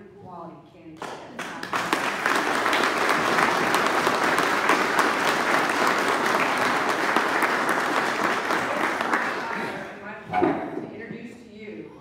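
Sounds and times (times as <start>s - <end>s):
audience applauding: 1.4s - 10.0s.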